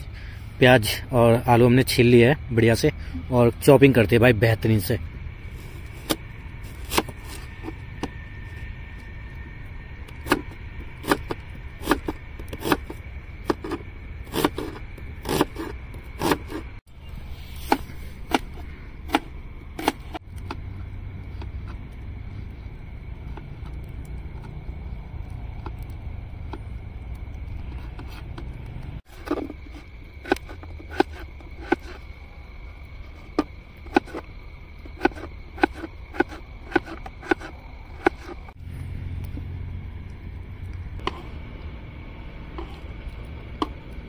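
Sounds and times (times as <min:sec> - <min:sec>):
steady low rumble: 0:00.0 - 0:44.0
knife chopping on cutting board: 0:11.0 - 0:12.9, 0:15.2 - 0:16.6, 0:35.0 - 0:38.4.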